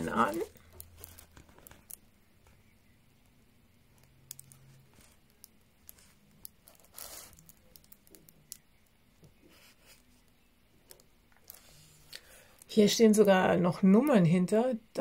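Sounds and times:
plastic crinkling and rustling: 0.0s - 2.1s.

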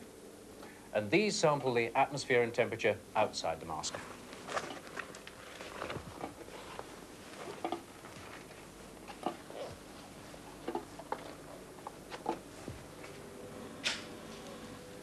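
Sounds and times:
hood material rustling: 3.9s - 13.3s.

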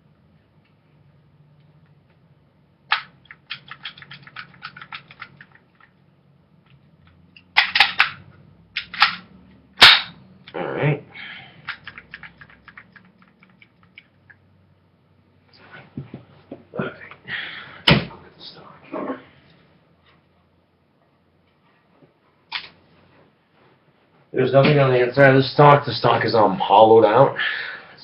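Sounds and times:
plastic and metal clacks: 2.9s - 6.0s
small rattling clicks: 2.9s - 6.0s, 11.6s - 14.4s
bb gun shot crack: 9.8s - 10.2s
sharp snap: 9.8s - 10.2s.

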